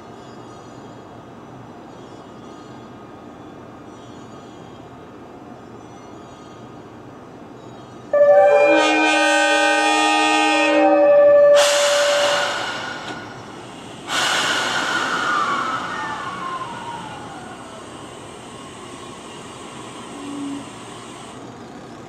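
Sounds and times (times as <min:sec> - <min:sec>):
train horn chord: 0:08.1 - 0:13.0.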